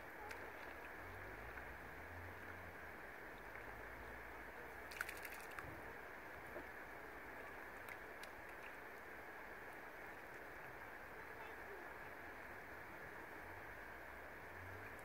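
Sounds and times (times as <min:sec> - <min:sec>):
cluster of clicks: 0:04.9 - 0:05.7.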